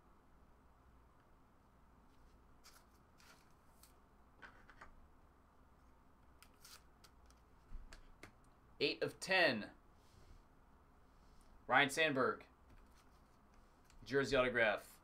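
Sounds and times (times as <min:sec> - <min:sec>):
trading cards clicking and rustling: 0:02.6 - 0:05.0, 0:12.7 - 0:14.1.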